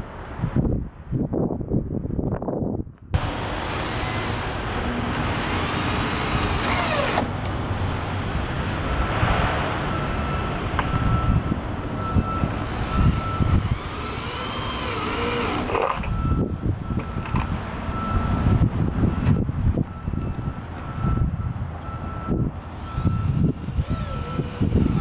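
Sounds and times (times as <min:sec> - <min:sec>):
cordless drill whining: 0:03.2 - 0:04.6, 0:05.2 - 0:07.6, 0:12.6 - 0:16.1, 0:22.7 - 0:25.0
low rumble: 0:07.6 - 0:12.9.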